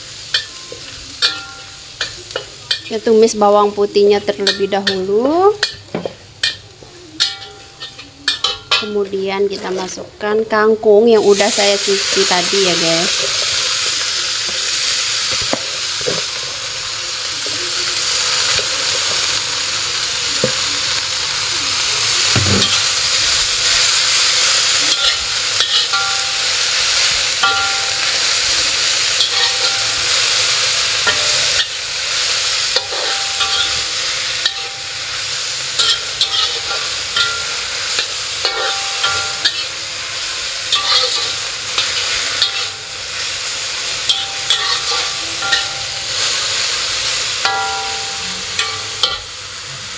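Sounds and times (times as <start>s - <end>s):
vegetables sizzling in a wok: 0.0s - 49.9s
metal spatula scraping a wok: 22.2s - 43.4s, 44.0s - 49.3s.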